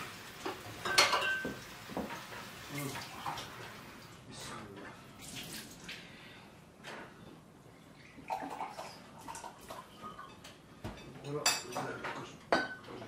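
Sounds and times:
tableware clinking: 0.4 - 1.6, 9.7 - 13.0.

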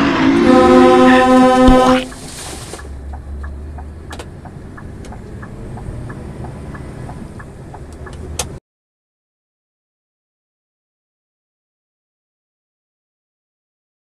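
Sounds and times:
engine and road rumble: 0.0 - 8.6
light ticking: 2.9 - 8.6.

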